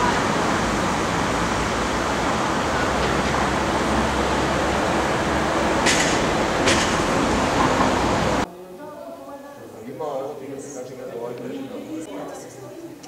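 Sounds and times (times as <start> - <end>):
loud rushing noise: 0.0 - 8.5.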